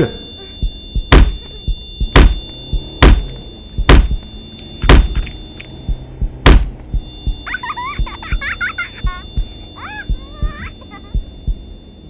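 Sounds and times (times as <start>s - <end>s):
faint steady high tone: 0.0s - 12.0s
heavy thuds of blows: 0.6s - 4.2s, 4.8s - 5.3s, 5.9s - 7.4s.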